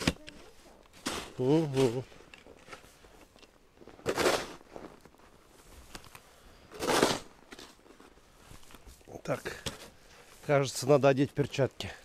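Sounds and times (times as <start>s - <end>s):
plastic shovel scraping snow: 4.0s - 5.0s, 6.7s - 7.8s.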